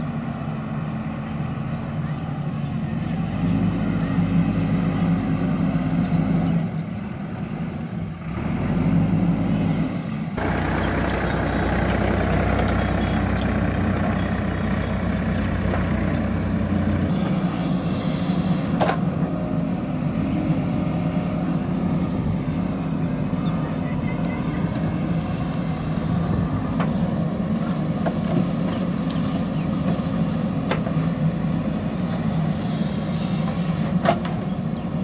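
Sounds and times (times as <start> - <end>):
diesel engines running under load: 0.0 - 35.0.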